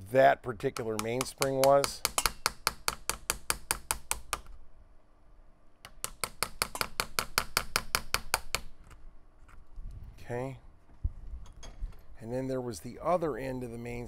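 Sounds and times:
chisel tapping into wood: 0.7s - 4.5s.

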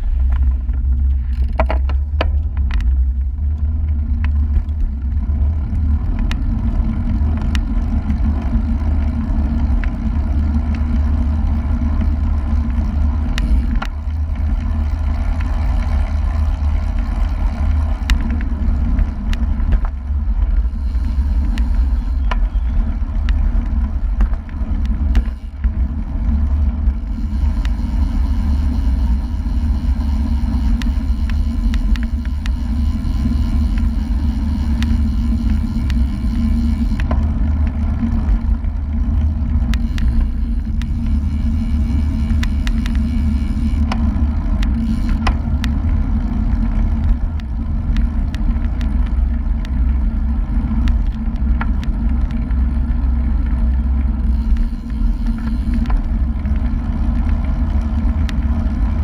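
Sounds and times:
road and tyre noise: 0.0s - 59.0s
wind rumble on microphone: 0.0s - 59.0s
sharp clicks: 27.3s - 37.2s, 39.6s - 44.0s.

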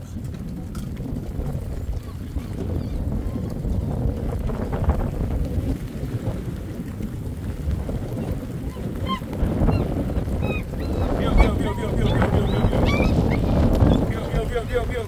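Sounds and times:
wind buffeting microphone: 0.0s - 15.0s
high squeaky animal calls: 9.1s - 14.1s.

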